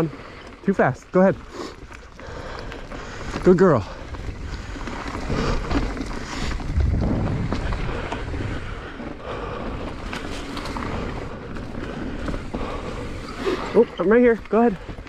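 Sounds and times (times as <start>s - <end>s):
bike clicks and rattles: 0.0s - 15.0s
tyres rumbling on dirt: 0.0s - 15.0s
wind rushing over microphone: 4.1s - 9.3s.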